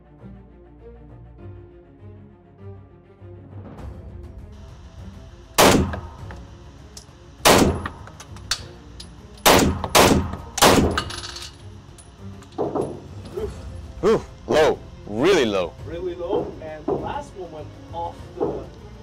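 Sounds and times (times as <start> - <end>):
handgun gunshots: 5.6 - 6.4, 7.4 - 11.4.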